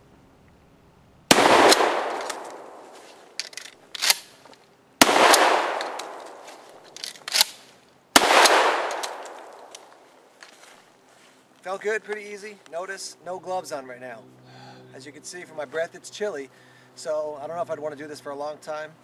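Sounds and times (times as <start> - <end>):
shotgun shots with echo: 1.3 - 2.9, 5.0 - 6.4, 8.2 - 9.7.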